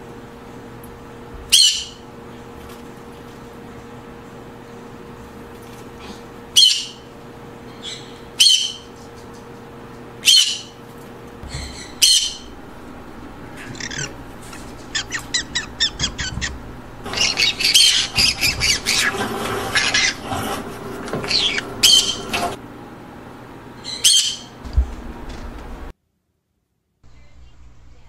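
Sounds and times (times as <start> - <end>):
parrots squawking and chattering: 1.5 - 2.0, 6.6 - 7.0, 11.4 - 22.6.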